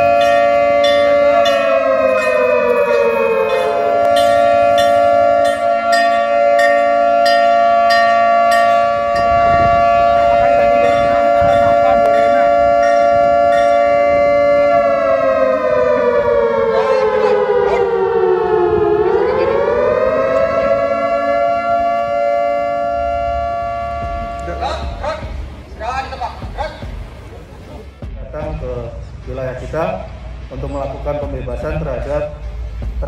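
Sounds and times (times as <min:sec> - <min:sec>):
alarm siren: 0:00.0 - 0:25.4.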